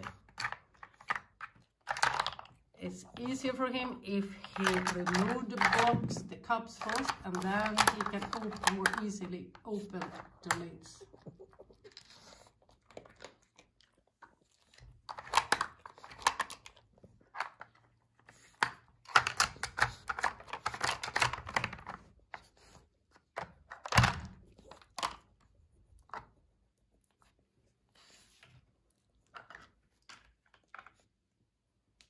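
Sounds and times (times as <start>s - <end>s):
plastic puzzle clicking and clattering: 0.0s - 10.9s, 15.0s - 22.5s, 23.2s - 25.3s, 29.3s - 31.0s
dog chewing treats: 9.8s - 22.7s.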